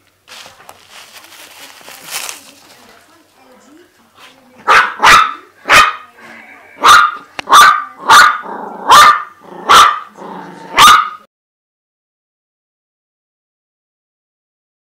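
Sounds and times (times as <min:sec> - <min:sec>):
small dog barking: 0:04.6 - 0:06.1, 0:06.8 - 0:11.3
dog growling: 0:07.9 - 0:10.9.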